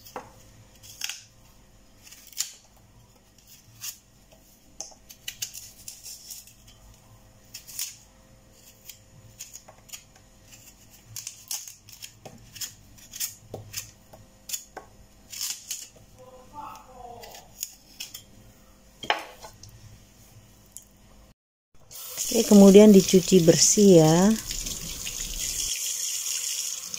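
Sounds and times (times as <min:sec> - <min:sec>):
knife scraping taro skin: 0:00.7 - 0:01.3, 0:02.0 - 0:04.1, 0:05.1 - 0:06.8, 0:07.4 - 0:16.0, 0:17.2 - 0:18.3.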